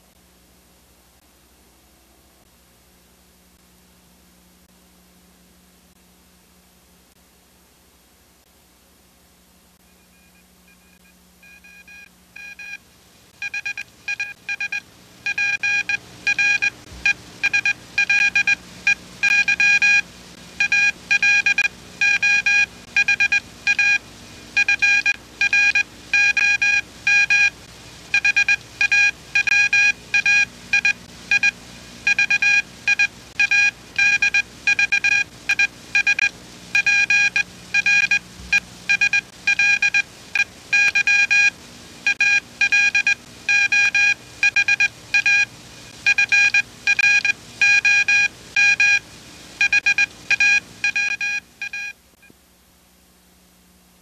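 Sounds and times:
faint low hum: 0:00.0 - 0:54.0
electronic beeping: 0:13.4 - 0:16.7, 0:38.9 - 0:41.5, 0:49.6 - 0:52.0.

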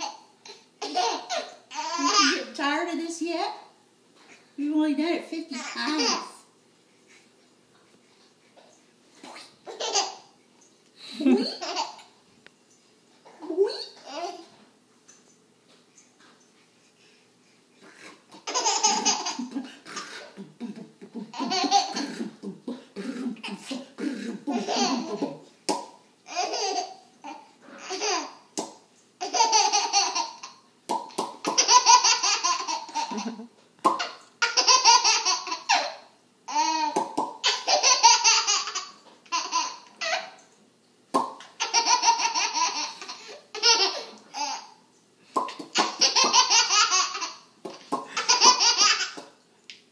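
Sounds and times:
baby laughing: 0:00.0 - 0:02.5, 0:05.5 - 0:06.4, 0:09.2 - 0:10.3, 0:11.2 - 0:12.1, 0:13.8 - 0:14.5, 0:18.3 - 0:25.4, 0:26.3 - 0:28.4, 0:29.2 - 0:30.6, 0:31.3 - 0:40.4, 0:41.4 - 0:44.8, 0:45.5 - 0:49.4.

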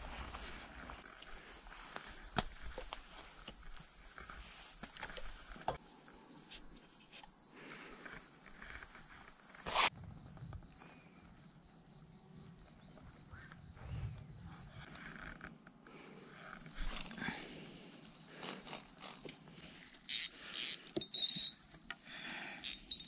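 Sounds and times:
pulsing insect call: 0:00.0 - 0:09.9, 0:19.6 - 0:23.0
insects chirping: 0:00.0 - 0:23.0.

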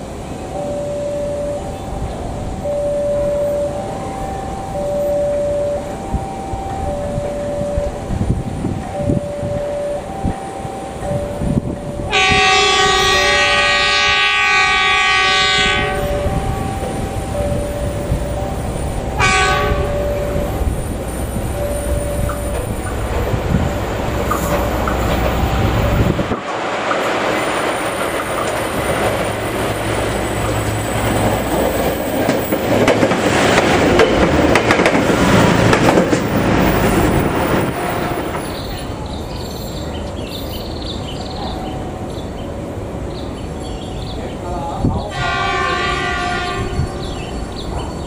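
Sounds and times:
diesel machine engine and wheels: 0:00.0 - 0:45.2
horn toot: 0:12.1 - 0:16.4, 0:19.2 - 0:20.4, 0:45.1 - 0:47.0.

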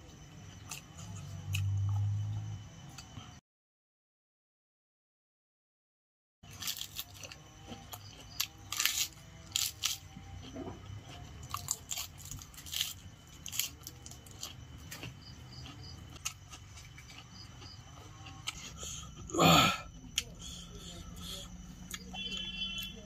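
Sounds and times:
person chewing noodles: 0:06.5 - 0:22.2.

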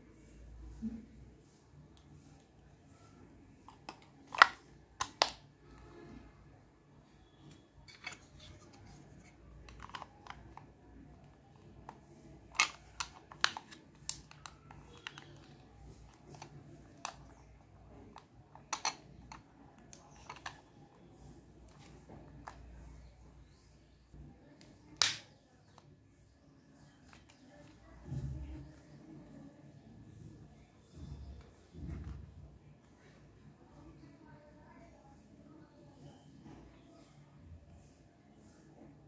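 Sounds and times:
plastic clicks and taps: 0:03.7 - 0:05.4, 0:07.5 - 0:20.7.

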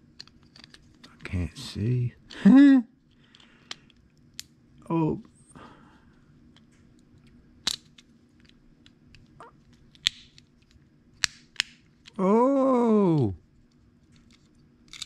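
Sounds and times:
small plastic clicks and snaps: 0:06.5 - 0:12.2.

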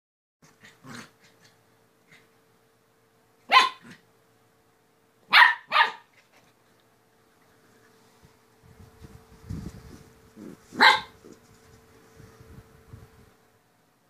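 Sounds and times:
puppy barking: 0:03.5 - 0:04.0, 0:05.2 - 0:06.2, 0:10.7 - 0:11.4.

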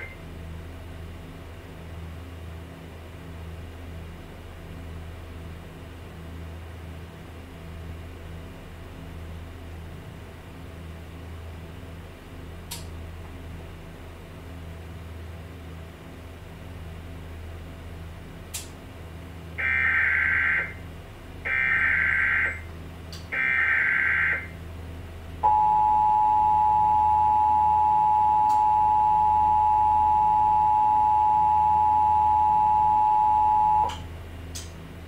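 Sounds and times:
two-tone attention signal: 0:25.4 - 0:34.0.

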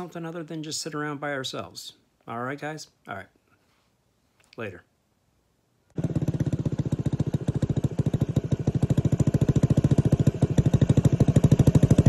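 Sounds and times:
scooter engine idling: 0:06.0 - 0:12.0.

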